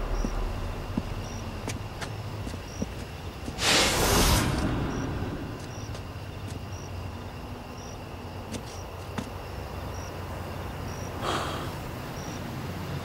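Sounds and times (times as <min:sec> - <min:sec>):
low steady rumble: 0:00.0 - 0:07.6
cricket chirping: 0:00.0 - 0:13.0
brief rush of noise: 0:03.6 - 0:05.9.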